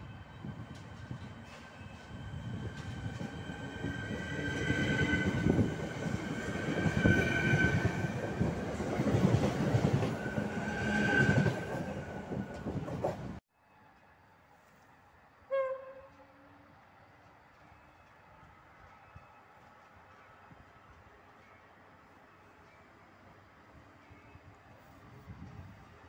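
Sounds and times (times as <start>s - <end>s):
high-pitched train whine: 0.0s - 12.8s
train wheels rumbling on rails: 0.0s - 13.4s.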